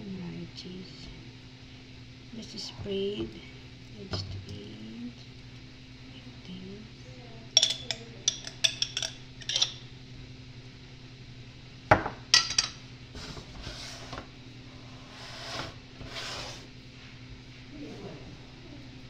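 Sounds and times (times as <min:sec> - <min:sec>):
metal spoon clinking on dish: 0:07.6 - 0:09.8.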